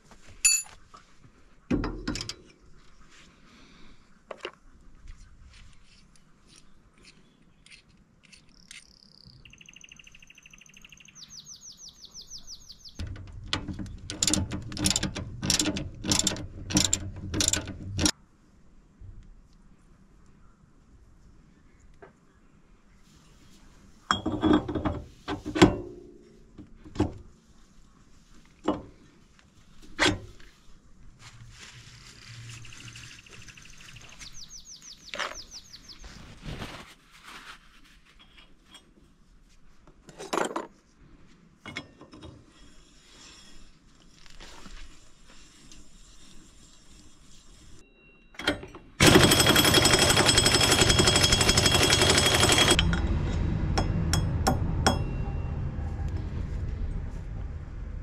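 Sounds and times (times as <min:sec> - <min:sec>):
tools clinking and clunking: 0:00.4 - 0:00.8, 0:01.7 - 0:02.6, 0:13.0 - 0:18.1, 0:24.1 - 0:26.0, 0:41.6 - 0:42.5, 0:48.2 - 0:53.1
impact wrench hammering: 0:49.0 - 0:53.0.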